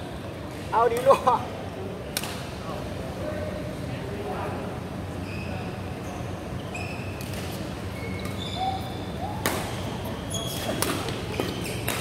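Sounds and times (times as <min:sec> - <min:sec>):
shoes squeaking on floor: 0:05.2 - 0:07.3, 0:07.9 - 0:12.0
rackets striking shuttlecock: 0:09.4 - 0:09.8, 0:10.6 - 0:12.0.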